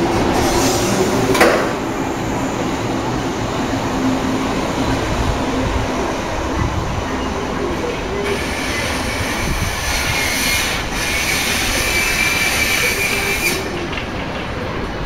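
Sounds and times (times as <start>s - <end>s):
electric train rolling: 0.0s - 15.0s
high-pitched brake squeal: 8.2s - 13.7s.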